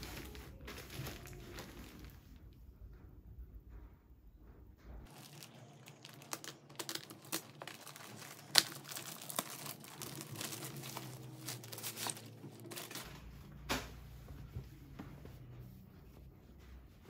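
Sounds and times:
plastic bag crinkling: 0:00.0 - 0:02.4, 0:05.1 - 0:13.2.

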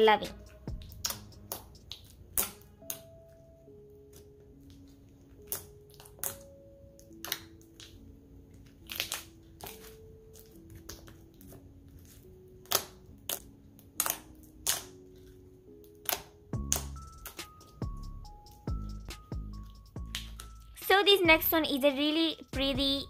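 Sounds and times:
quiet background music: 0:00.0 - 0:23.0
slime clicking pops: 0:14.0 - 0:14.9, 0:16.0 - 0:17.5.

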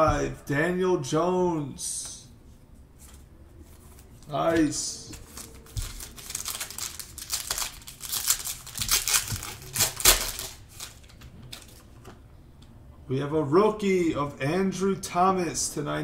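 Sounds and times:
foil wrapper tearing and crinkling: 0:05.2 - 0:11.7.

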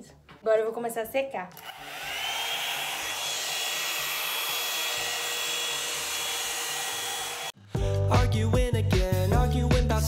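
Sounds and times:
hair dryer blowing air: 0:01.6 - 0:07.6.

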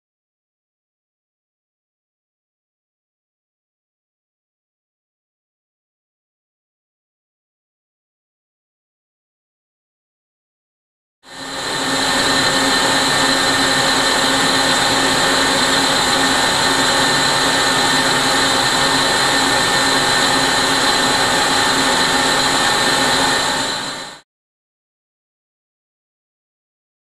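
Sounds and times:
high whining tones: 0:11.3 - 0:24.2
lathe whirring and hissing: 0:11.3 - 0:24.2.

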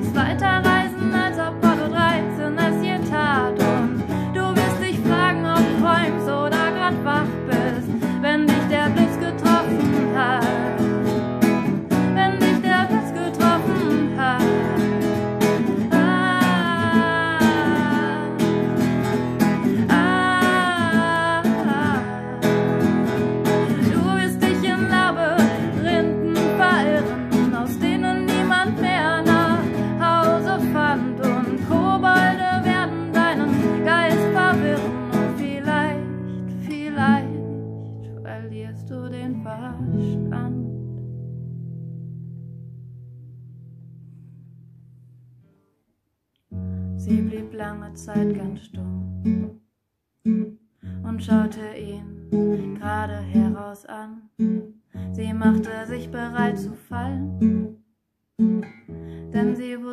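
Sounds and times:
woman singing: 0:00.0 - 0:11.2, 0:11.9 - 0:41.0, 0:47.0 - 0:49.1, 0:51.0 - 0:54.4, 0:55.0 - 0:57.6, 0:59.2 - 0:59.9
strummed acoustic guitar: 0:00.0 - 0:38.2, 0:54.4 - 0:57.8, 0:58.4 - 0:59.9.

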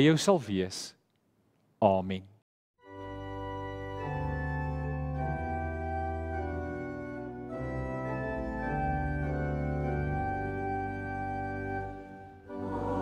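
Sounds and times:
organ playing held chords: 0:02.8 - 0:13.0.

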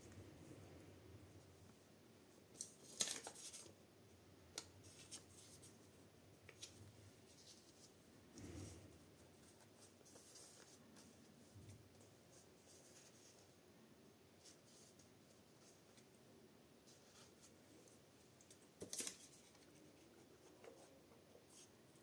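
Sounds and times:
paper rustling: 0:02.5 - 0:03.8, 0:09.2 - 0:13.5, 0:16.8 - 0:21.7.

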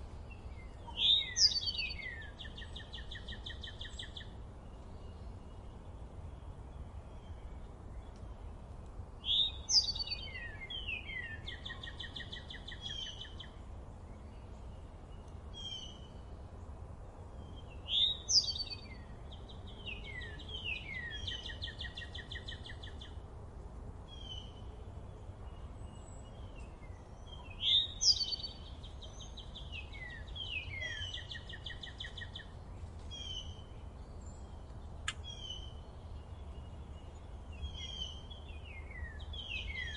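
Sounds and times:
songbird singing: 0:00.0 - 0:39.9
bird chirps: 0:00.3 - 0:05.6, 0:09.2 - 0:13.6, 0:17.5 - 0:23.2, 0:25.5 - 0:39.9.

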